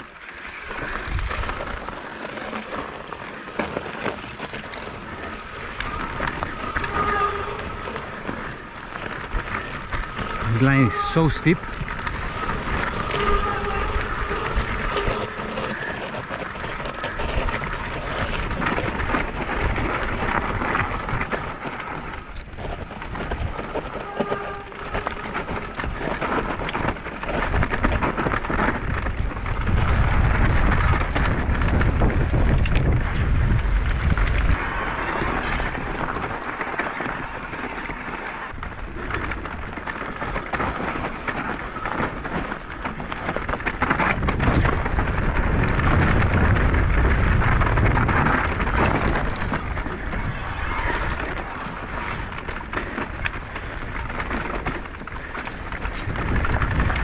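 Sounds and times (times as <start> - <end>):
bike rattling and knocking: 0.0 - 57.0
bike tyres rolling over gravel: 0.0 - 57.0
wind buffeting microphone: 0.7 - 57.0.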